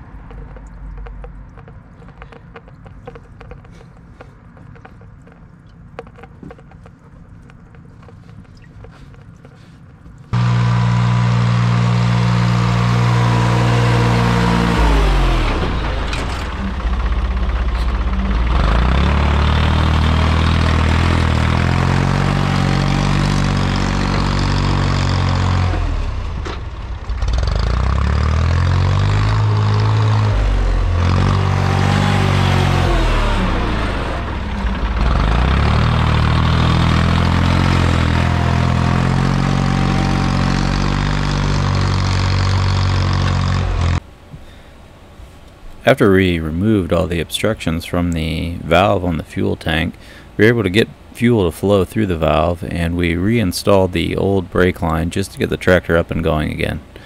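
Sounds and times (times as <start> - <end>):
tractor diesel engine running: 0.0 - 44.7.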